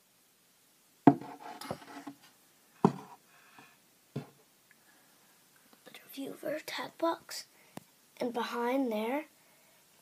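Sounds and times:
sharp knocks on wood: 1.1 - 1.4, 2.8 - 3.1.

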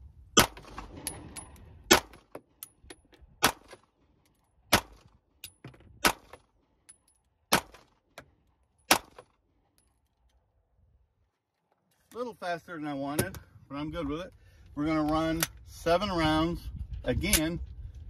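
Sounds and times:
pistol shots: 0.4 - 1.3, 1.9 - 2.3, 3.4 - 3.8, 4.7 - 5.1, 8.9 - 9.2.

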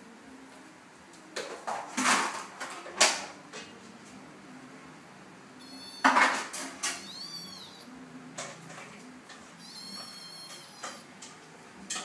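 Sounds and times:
cat hissing: 5.6 - 7.9.

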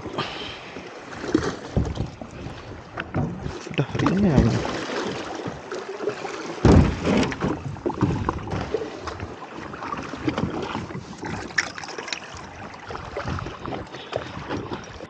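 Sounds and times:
paddle splashes and taps: 0.0 - 15.0
water sloshing: 0.0 - 15.0
loud low thump: 6.6 - 7.4.

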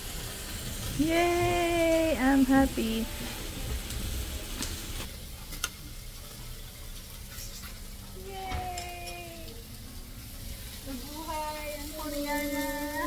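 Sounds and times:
meat sizzling on grill pan: 0.0 - 13.0
metal tongs clicking on pan: 8.6 - 9.7.

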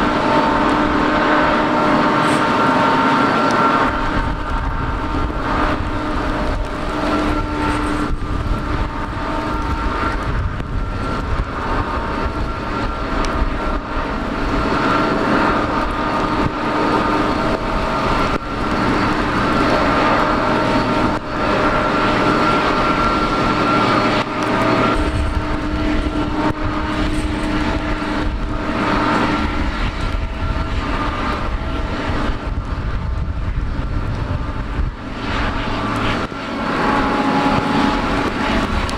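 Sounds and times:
jet airliner engines whining: 0.0 - 38.9
low rumble: 0.0 - 38.9.

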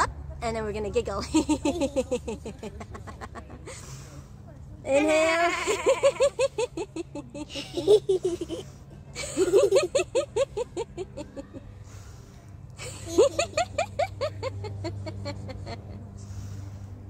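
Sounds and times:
people giggling in bursts: 1.2 - 3.8, 5.5 - 11.6, 12.8 - 16.0.

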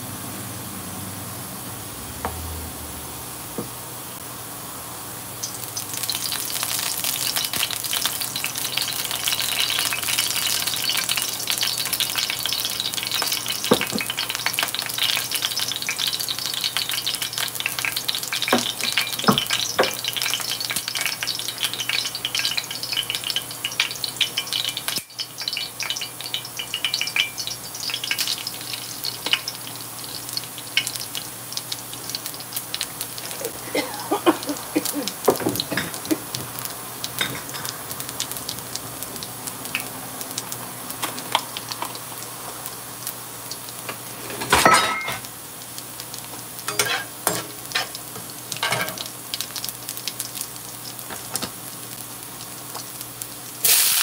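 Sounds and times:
spices sizzling in hot oil: 0.3 - 54.0
pan and utensil clinks: 44.3 - 45.2, 46.7 - 47.9, 48.6 - 49.1.

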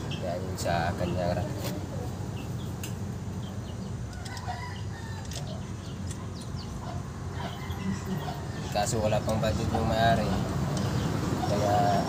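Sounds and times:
chickens clucking: 0.0 - 12.0
rooster crowing: 4.1 - 5.4, 7.3 - 8.7.

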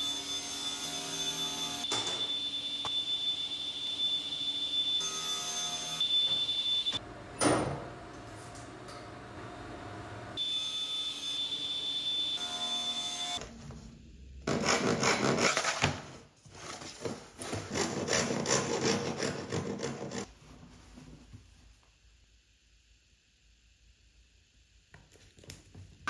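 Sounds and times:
hand tool rasping on wood: 17.7 - 20.3.

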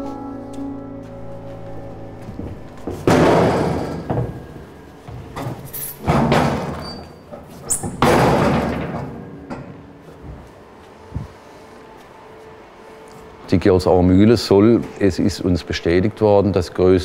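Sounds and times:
background music: 0.0 - 6.5
loud slams: 3.0 - 4.4, 7.8 - 9.3.

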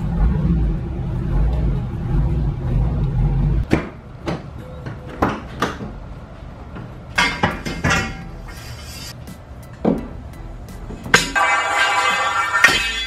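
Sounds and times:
low engine rumble: 0.0 - 5.2.

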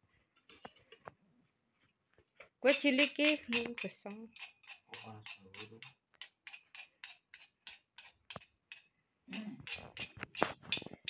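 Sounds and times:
spoon clinking in stone mortar: 2.7 - 11.0.

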